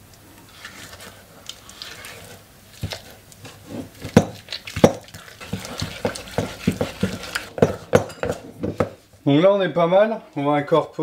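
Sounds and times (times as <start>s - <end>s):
spatula scraping bowl: 0.5s - 9.0s
spatula knocking on metal bowl: 4.0s - 9.0s.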